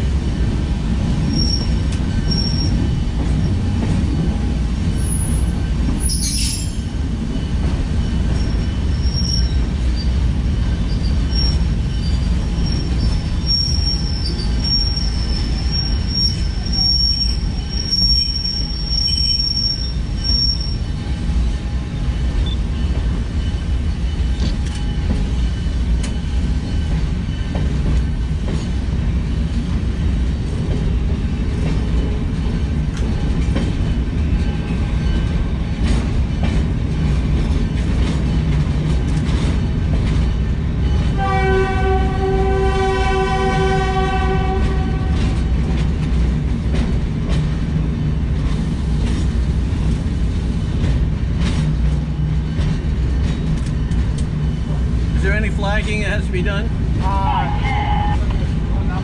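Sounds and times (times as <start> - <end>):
train wheels rumbling on rail: 0.0 - 59.0
train horn blast: 41.2 - 45.5.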